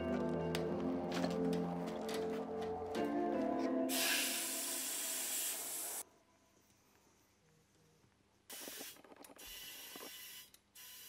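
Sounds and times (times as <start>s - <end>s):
compressed air hissing: 3.9s - 6.0s.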